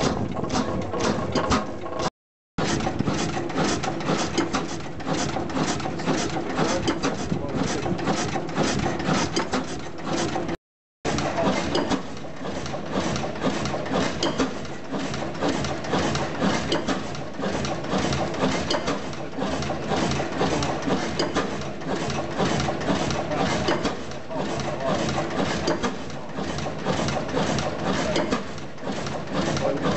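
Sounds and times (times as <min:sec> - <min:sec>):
oil engine clattering: 0:00.0 - 0:29.9.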